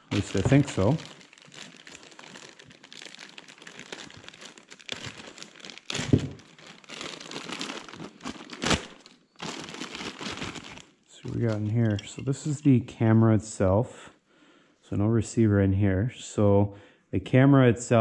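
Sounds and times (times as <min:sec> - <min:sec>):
plastic bags crinkling: 0:00.0 - 0:12.3.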